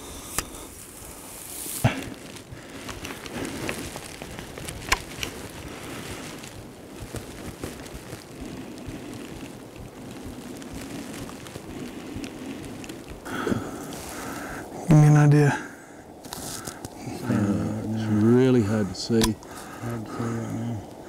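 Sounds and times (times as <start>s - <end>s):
wind noise on microphone: 0.0s - 14.9s
sharp clicks: 19.1s - 20.0s.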